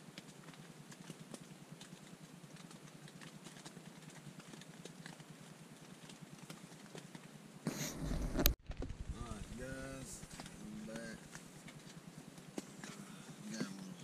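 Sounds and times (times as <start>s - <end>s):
rain pattering on tent fabric: 0.0s - 14.0s
camera handling rumble: 7.7s - 12.0s.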